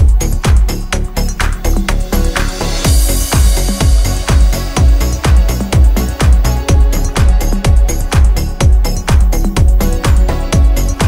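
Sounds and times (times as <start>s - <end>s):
electronic dance music: 0.0s - 11.0s
kick drum beat: 0.0s - 11.0s.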